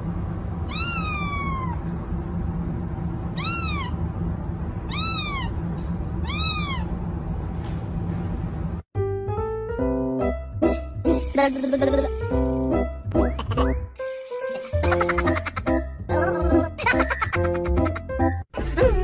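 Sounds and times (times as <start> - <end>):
kitten meowing: 0.7 - 1.8, 3.4 - 4.0, 4.9 - 5.6, 6.2 - 6.9.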